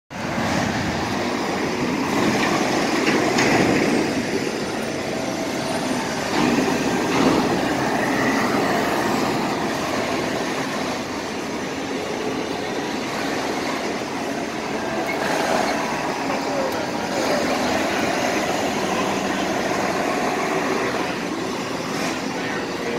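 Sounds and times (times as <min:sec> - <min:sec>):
buses and trucks running: 0:00.1 - 0:22.9
heavy traffic rumble: 0:00.1 - 0:22.9.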